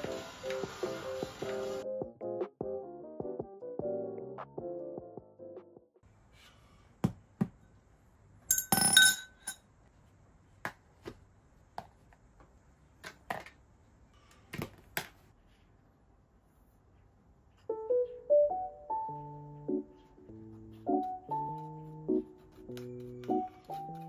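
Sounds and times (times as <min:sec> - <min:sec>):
ringing glass clink: 0:08.5 - 0:09.6.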